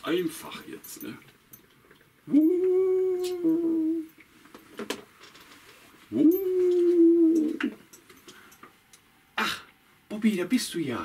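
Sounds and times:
person imitating dog howling: 2.3 - 4.1, 6.1 - 7.7.

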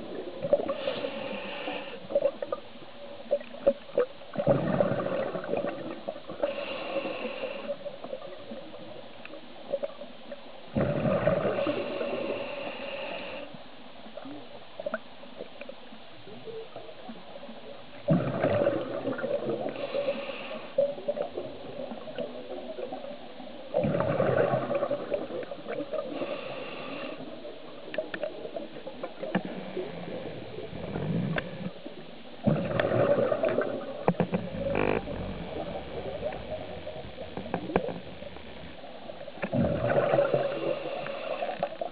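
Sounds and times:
exhaled bubbles rumbling underwater: 0.0 - 12.7, 14.0 - 41.9
regulator hiss: 11.6 - 13.6.

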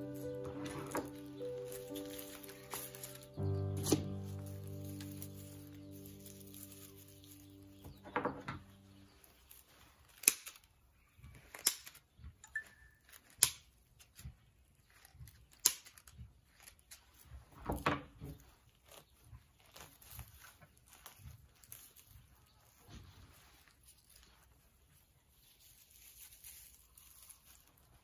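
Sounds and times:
background music: 0.0 - 9.1
rustling: 0.0 - 12.4, 13.0 - 28.0.

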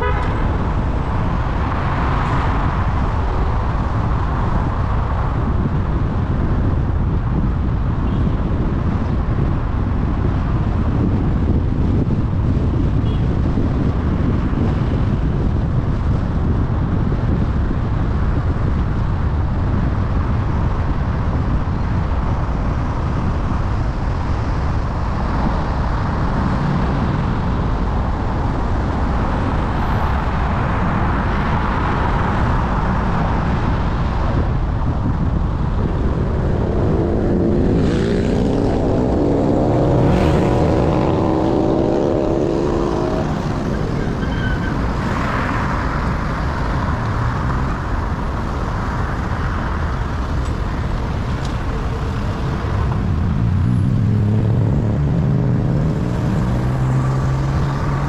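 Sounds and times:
road and tyre rumble: 0.0 - 58.0
vehicle engine passing: 36.0 - 44.9.

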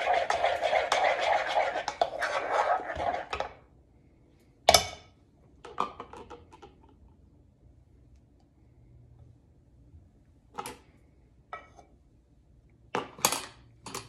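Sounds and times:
spatula scraping spoon: 0.0 - 3.5.

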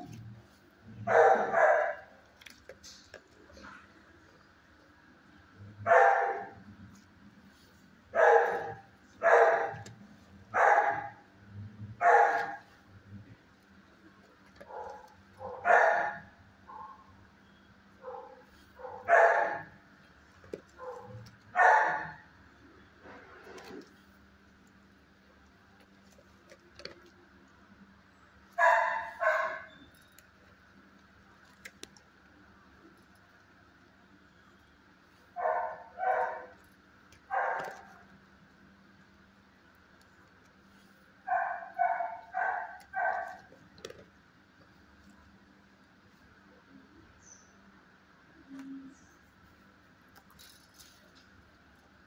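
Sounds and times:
faint steady hum: 0.0 - 52.0
dogs barking: 1.0 - 2.2, 5.7 - 6.7, 8.1 - 11.3, 11.9 - 12.8, 14.6 - 17.1, 17.9 - 19.9, 20.7 - 22.4, 28.5 - 29.8, 35.3 - 38.1, 41.2 - 43.6.

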